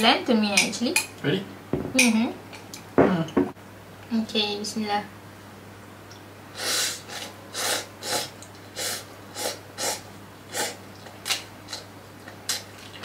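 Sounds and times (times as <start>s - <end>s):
person slurping noodles: 6.6s - 10.8s.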